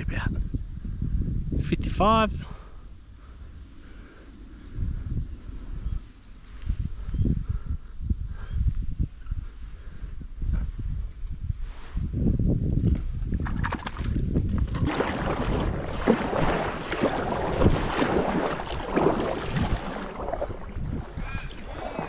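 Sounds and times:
wind rumbling on microphone: 0.0s - 22.0s
paddle strokes splashing: 13.6s - 22.0s.

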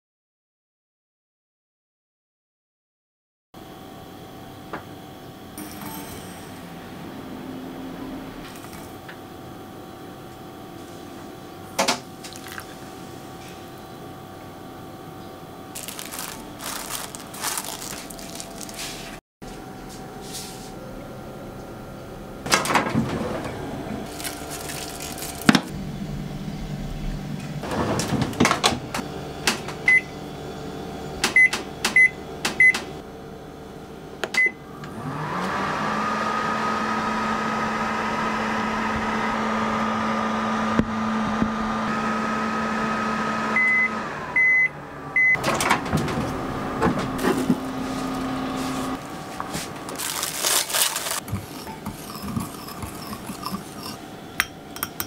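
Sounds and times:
microwave humming: 3.6s - 55.0s
microwave control panel beeps: 29.8s - 30.2s, 31.3s - 32.9s, 34.3s - 34.6s, 43.6s - 45.5s.

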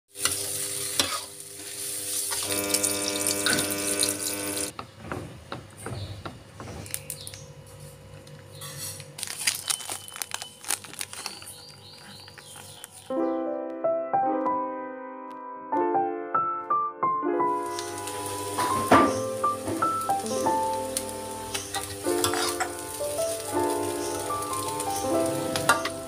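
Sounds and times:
noodles sizzling in a wok: 0.1s - 4.7s, 17.6s - 26.0s
plastic sachets crinkling: 8.2s - 13.2s
soft background music: 13.1s - 26.0s
spatula scraping and clinking: 21.5s - 22.7s.

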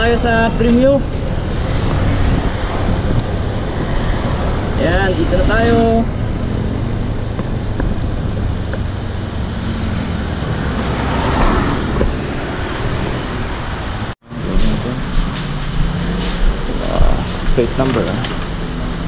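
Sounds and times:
wind on microphone: 1.0s - 15.8s.

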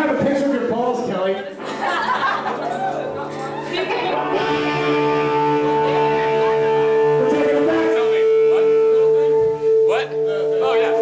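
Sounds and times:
crowd chattering: 0.0s - 11.0s
electric guitar ringing note: 4.1s - 11.0s.

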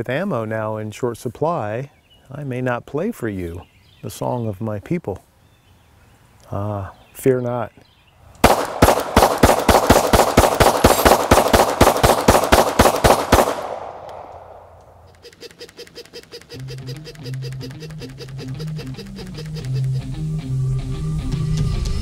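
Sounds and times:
pistol shots in rapid string: 8.4s - 14.8s
rhythmic music with guitar: 16.8s - 22.0s.

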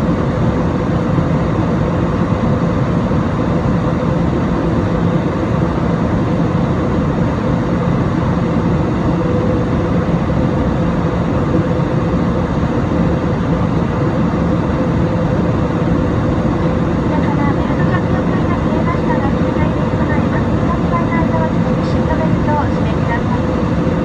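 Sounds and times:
constant low hum: 0.0s - 24.0s
jet engine drone: 0.0s - 24.0s.

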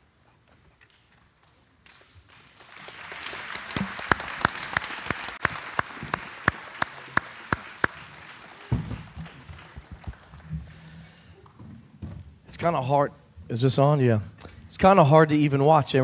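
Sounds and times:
sharp close claps: 1.4s - 10.8s
audience applauding: 1.8s - 11.2s.

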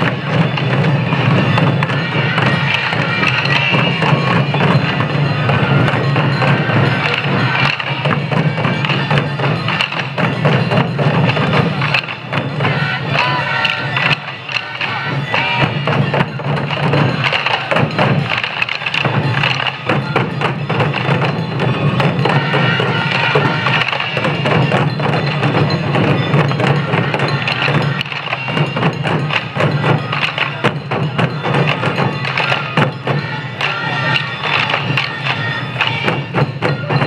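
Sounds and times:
festival music: 0.0s - 37.0s
taiko drums beaten in rhythm: 0.0s - 37.0s.

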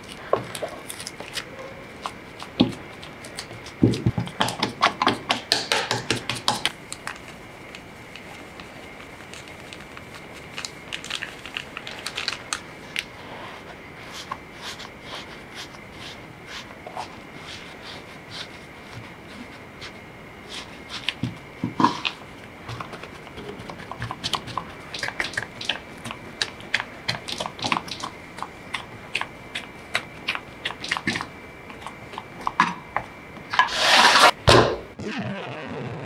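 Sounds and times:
spatula stirring dough in bowl: 33.5s - 34.4s.

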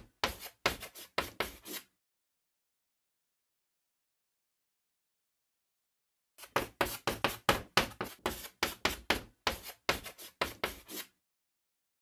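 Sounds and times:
chalk tapping on blackboard: 0.1s - 1.9s, 6.4s - 11.1s.

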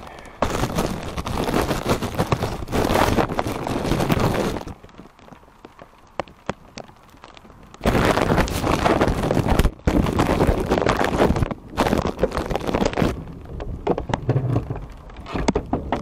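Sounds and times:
wind gusting over microphone: 0.0s - 5.3s, 7.6s - 16.0s
plastic bag rustling: 0.0s - 5.5s, 6.9s - 13.3s
rain ticking on plastic bag: 0.0s - 16.0s.

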